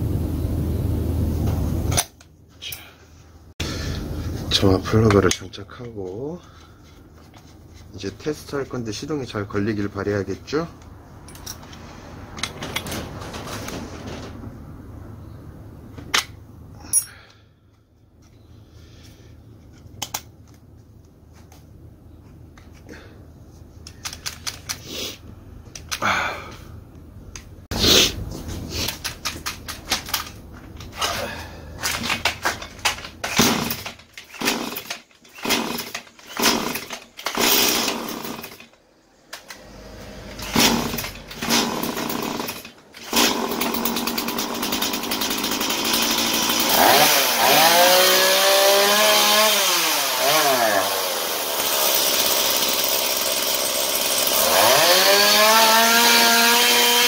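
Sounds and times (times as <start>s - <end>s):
chainsaw engine revving: 33.3s - 38.7s, 39.6s - 57.0s.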